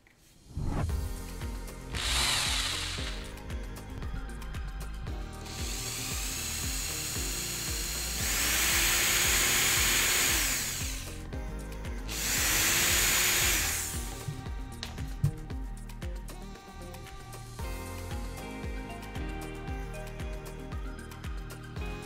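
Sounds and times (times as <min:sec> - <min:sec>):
background music: 0:00.4 - 0:22.0
cordless drill boring wood: 0:01.9 - 0:03.4, 0:05.4 - 0:11.3, 0:12.1 - 0:14.3.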